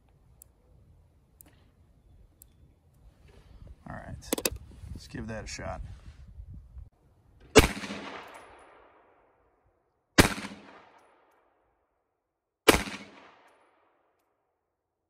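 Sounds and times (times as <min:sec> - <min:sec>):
pistol shots with echo: 0:07.5 - 0:09.4, 0:10.2 - 0:11.3, 0:12.6 - 0:14.0.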